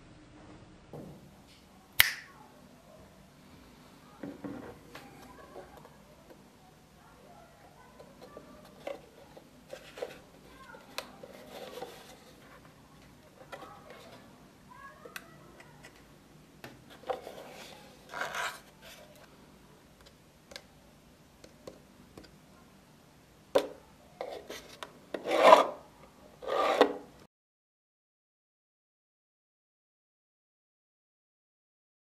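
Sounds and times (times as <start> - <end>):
drawer sliding with scrape: 16.9 - 19.0, 24.2 - 25.8, 26.4 - 27.1.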